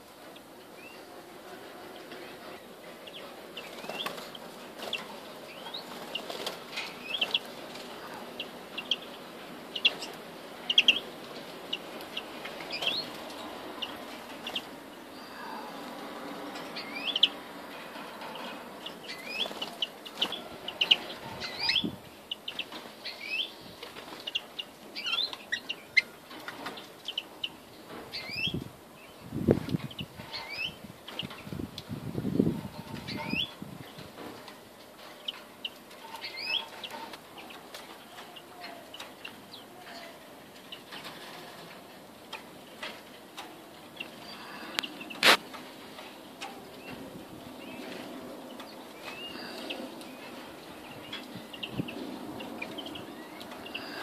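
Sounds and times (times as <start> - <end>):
finches chirping and twittering: 2.0 - 15.7, 16.6 - 17.4, 18.2 - 31.5, 32.6 - 34.0, 35.2 - 41.2, 46.8 - 54.0
wings flapping against cage: 3.6 - 9.0, 17.9 - 21.8.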